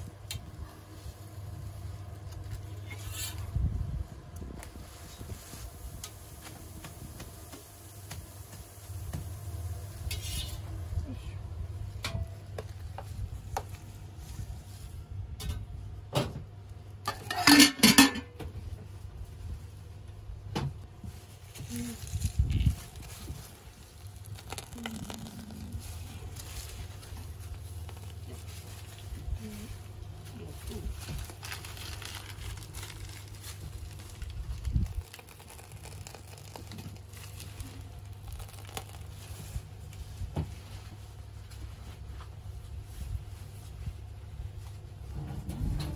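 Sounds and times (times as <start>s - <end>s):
low steady rumble: 0.0s - 45.9s
metal utensils clinking: 17.1s - 18.3s
plastic piping bag crinkling: 21.0s - 40.9s.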